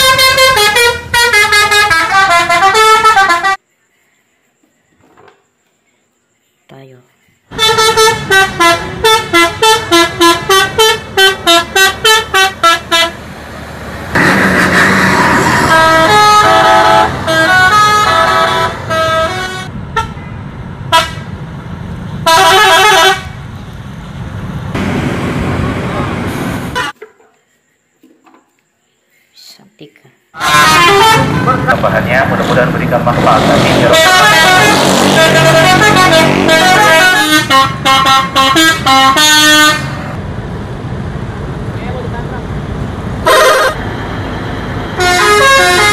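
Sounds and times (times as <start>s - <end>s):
musical air horns tooting: 0.0s - 3.6s, 7.5s - 13.2s, 14.1s - 20.2s, 20.9s - 21.3s, 22.2s - 23.4s, 26.3s - 27.0s, 30.4s - 40.2s, 43.2s - 43.8s, 44.9s - 45.9s.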